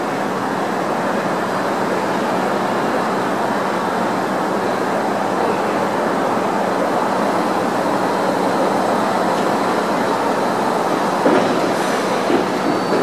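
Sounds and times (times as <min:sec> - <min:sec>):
monorail train rumbling: 0:00.0 - 0:13.0
train knocks: 0:09.2 - 0:13.0.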